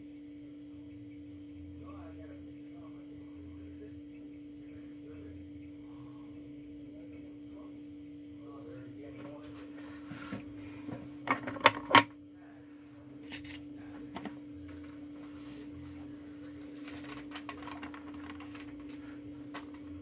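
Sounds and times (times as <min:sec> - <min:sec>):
steady hum: 0:00.0 - 0:20.0
sharp knocks and clatters: 0:11.2 - 0:12.1.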